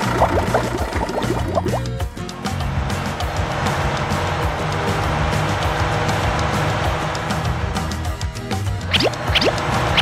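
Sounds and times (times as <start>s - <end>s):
background music: 0.0s - 10.0s
cartoon rising glides effect: 8.9s - 10.0s.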